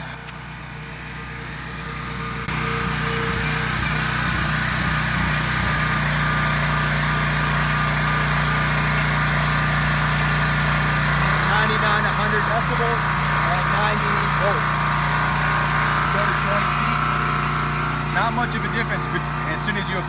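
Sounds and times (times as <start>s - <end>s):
generator engine running: 0.0s - 20.0s.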